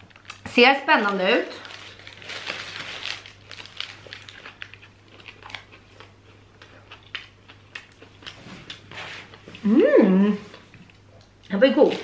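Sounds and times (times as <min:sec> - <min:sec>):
person chewing food: 0:03.6 - 0:09.7.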